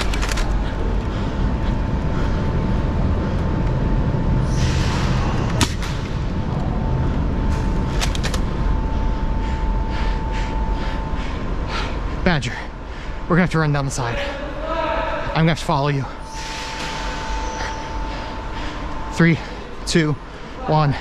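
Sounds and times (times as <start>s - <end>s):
low rumble: 0.0s - 13.9s
faint steady whine: 0.0s - 21.0s
blaster hiss: 4.5s - 5.4s, 16.3s - 17.9s.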